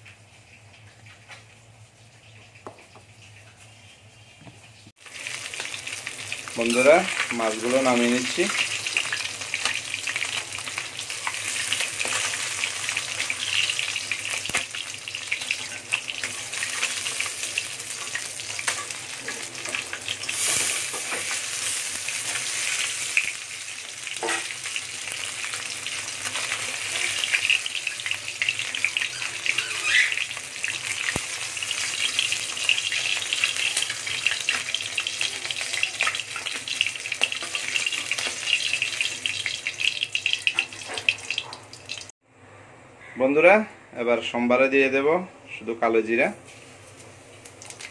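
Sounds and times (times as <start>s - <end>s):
fish frying in hot oil: 4.9s - 42.1s, 47.4s - 47.9s.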